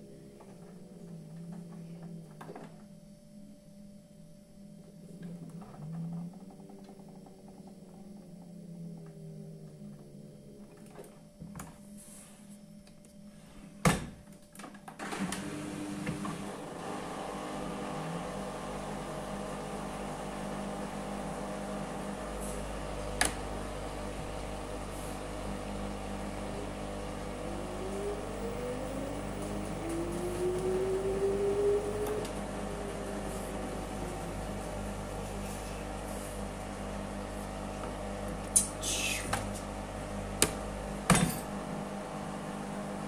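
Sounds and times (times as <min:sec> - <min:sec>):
washing machine motor humming: 0:00.0 - 0:02.8, 0:14.9 - 0:43.0.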